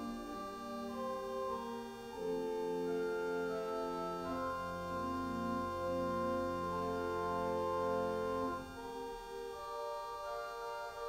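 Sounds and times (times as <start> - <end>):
church organ chords: 0.0 - 11.0.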